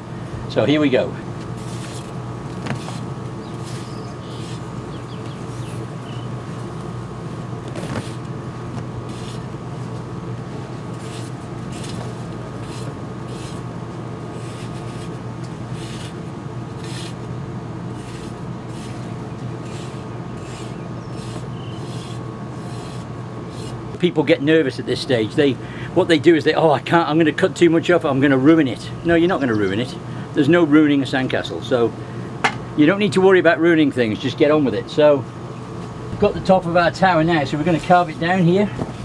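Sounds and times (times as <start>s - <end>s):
steady low hum: 0.0s - 39.0s
metal trowel scraping damp sand: 1.6s - 2.2s, 9.1s - 9.4s, 12.6s - 13.6s, 16.8s - 17.2s, 17.9s - 23.8s.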